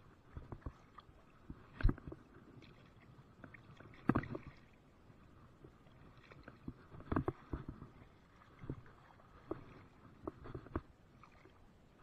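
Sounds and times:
water sloshing against hull: 0:00.0 - 0:12.0
knocks and thumps on a boat: 0:00.3 - 0:02.3, 0:03.4 - 0:04.6, 0:06.2 - 0:11.0.

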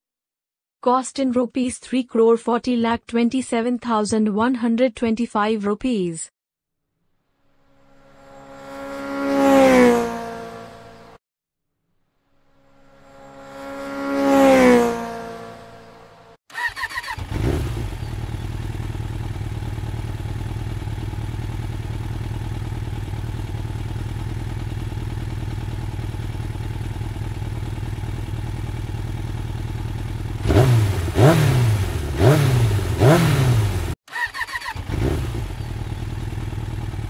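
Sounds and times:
motorcycle engine idling and revving: 0:07.6 - 0:11.2, 0:12.3 - 0:37.0.

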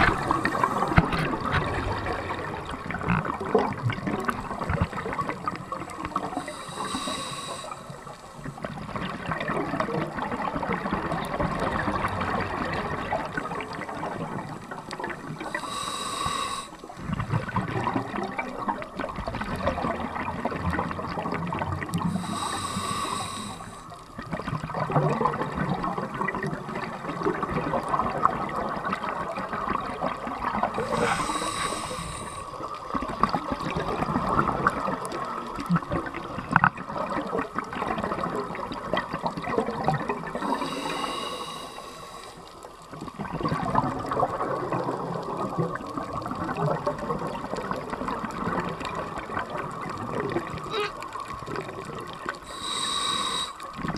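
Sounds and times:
regulator inhalation hiss: 0:00.0 - 0:01.0, 0:06.2 - 0:08.5, 0:15.4 - 0:16.9, 0:22.1 - 0:23.9, 0:30.8 - 0:32.7, 0:40.4 - 0:42.5, 0:52.5 - 0:53.8
exhaled air bubbling: 0:00.0 - 0:53.9.

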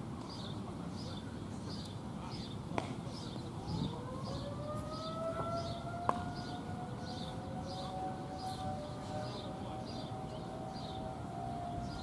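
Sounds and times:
outdoor warning siren rising: 0:03.6 - 0:12.0.

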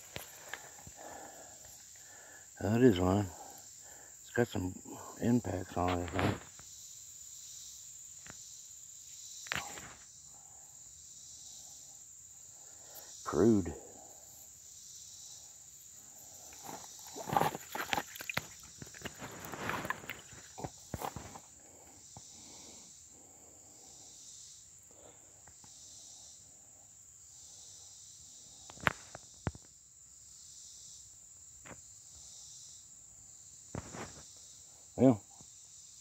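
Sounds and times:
insect chorus drone: 0:00.0 - 0:36.0
close rustling: 0:15.8 - 0:21.5.

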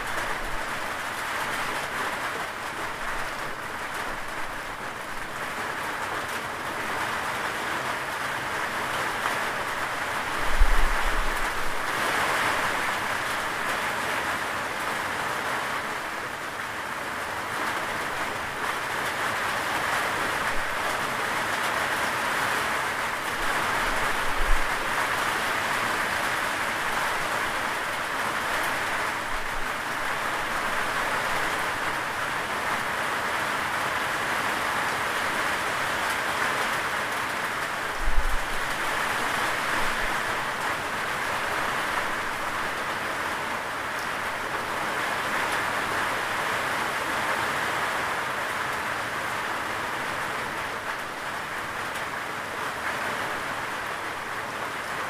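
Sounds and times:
rain falling: 0:00.0 - 0:55.0.

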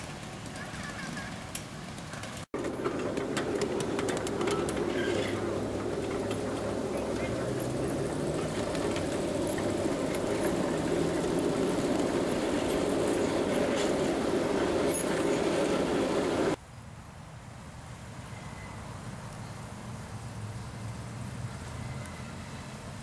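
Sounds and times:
train wheels rumbling on rails: 0:00.0 - 0:16.6.

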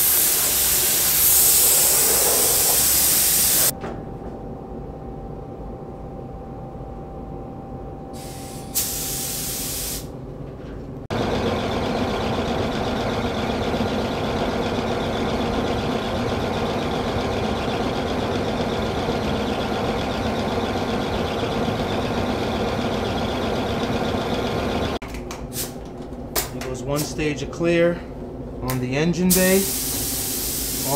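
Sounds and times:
compressed air rushing: 0:00.0 - 0:03.7
paint spray gun hissing: 0:00.0 - 0:03.7, 0:08.2 - 0:10.1, 0:29.5 - 0:30.9.

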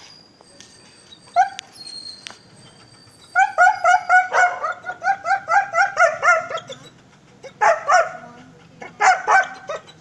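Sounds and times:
dog barking: 0:03.4 - 0:06.7, 0:07.5 - 0:09.9.

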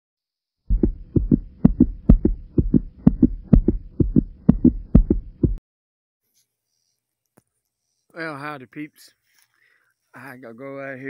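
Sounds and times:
faint steady hum: 0:00.7 - 0:05.6
heartbeat thumps: 0:00.7 - 0:05.6.

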